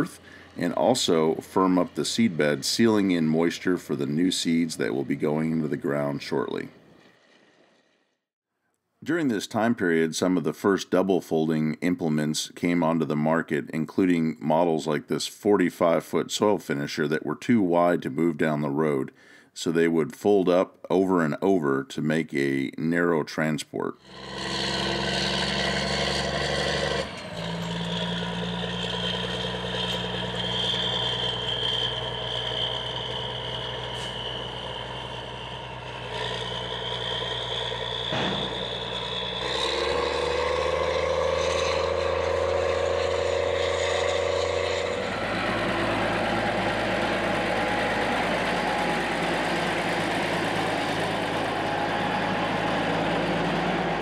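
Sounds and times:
tractor diesel engine running: 0.0 - 7.8, 24.0 - 54.0.

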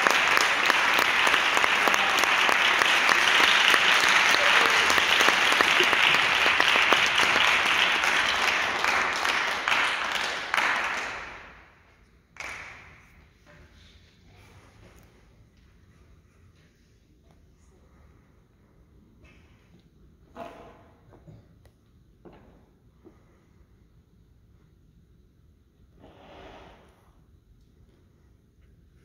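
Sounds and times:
audience applauding: 0.0 - 11.8, 12.4 - 13.1.

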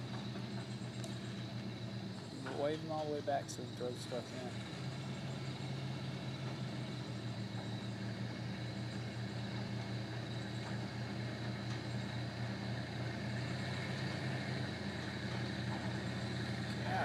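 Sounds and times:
truck engine running at low revs: 0.0 - 17.0.

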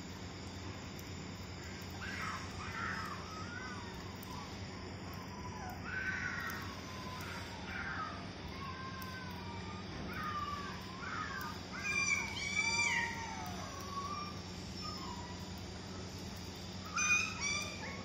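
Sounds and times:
puppy whining and yelping: 11.8 - 15.5, 16.9 - 18.0.

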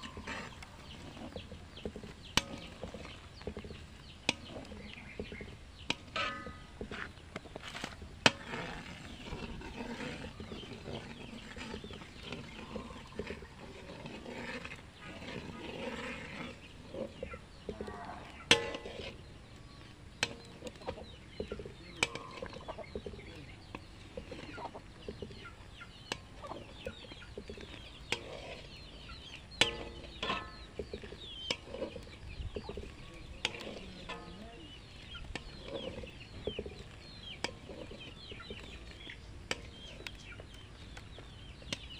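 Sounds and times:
chickens clucking: 0.0 - 41.9.

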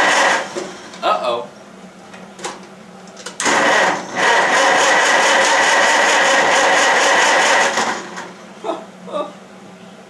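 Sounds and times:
tractor engine cranking: 3.4 - 8.3.

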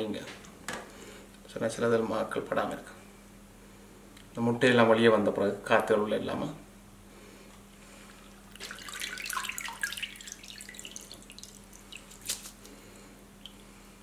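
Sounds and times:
water dripping: 8.1 - 12.6, 13.4 - 13.8
water splashing and trickling: 8.2 - 12.6.

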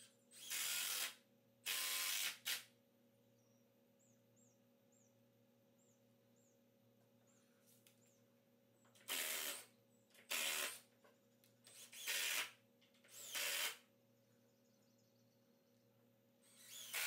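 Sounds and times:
power tool bursts: 0.4 - 2.6, 9.1 - 9.7, 10.3 - 10.8, 11.7 - 13.8, 16.5 - 17.0.

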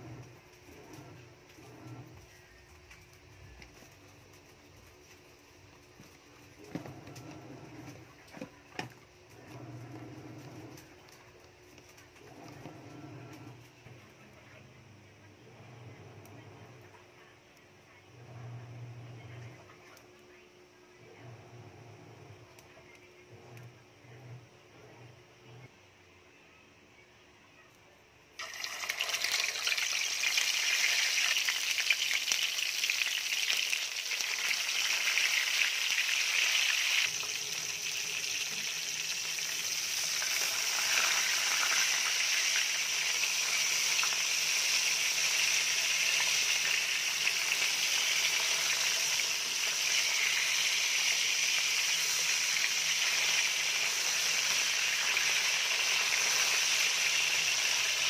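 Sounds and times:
fish sizzling in hot oil: 28.4 - 58.0.

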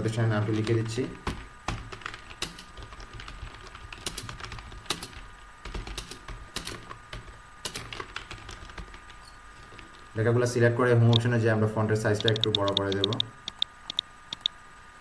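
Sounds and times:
typing on a keyboard: 0.6 - 9.2, 12.2 - 14.5.

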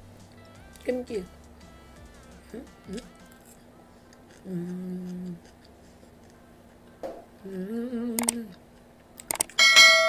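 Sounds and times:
woman humming with mouth full: 4.4 - 5.4, 7.4 - 8.6
mouse click sound effect: 8.2 - 8.4.

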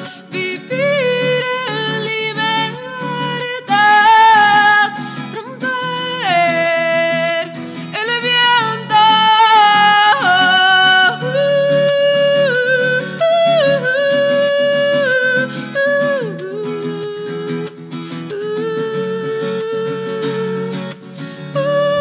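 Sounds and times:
strummed acoustic guitar: 0.0 - 22.0.

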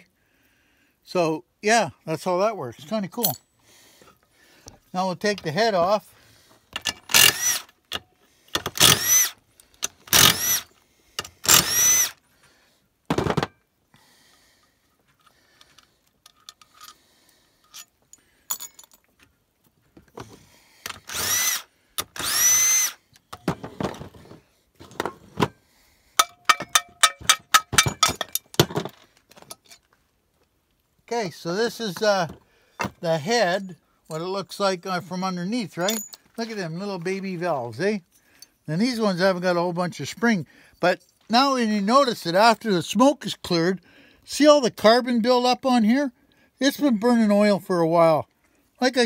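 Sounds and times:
metal parts clinking: 3.0 - 3.5, 15.2 - 17.0, 17.6 - 19.2, 26.2 - 29.9, 35.8 - 36.4
power driver unscrewing bolts: 6.7 - 12.2, 15.1 - 19.2, 20.0 - 25.6, 26.2 - 29.9, 35.8 - 36.3.

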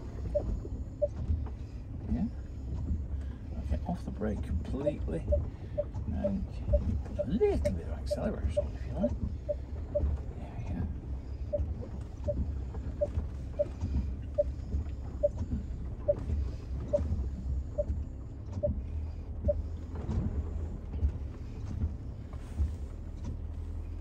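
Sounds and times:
engine and tyre rumble: 0.0 - 24.0
short beeps: 5.3 - 10.1.

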